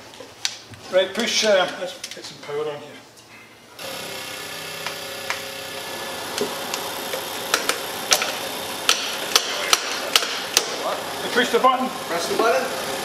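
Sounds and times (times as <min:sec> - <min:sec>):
steady electrical hum: 0:00.0 - 0:13.0
sharp metallic clicks and taps: 0:06.4 - 0:10.8.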